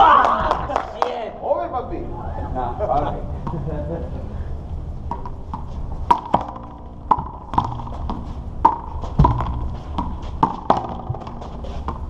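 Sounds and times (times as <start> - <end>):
rubber ball bouncing on concrete: 5.1 - 12.0.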